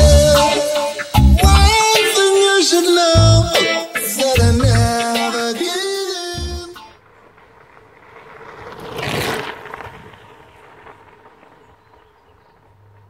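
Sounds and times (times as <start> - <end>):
background music: 0.0 - 7.0
bicycle tyres on gravel: 7.0 - 13.0.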